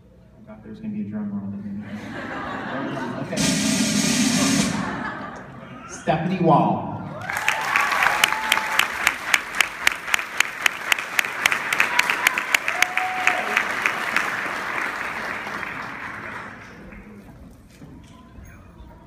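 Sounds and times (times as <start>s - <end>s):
audience applauding: 7.1s - 17.4s
loud close hand clapping: 7.2s - 17.1s.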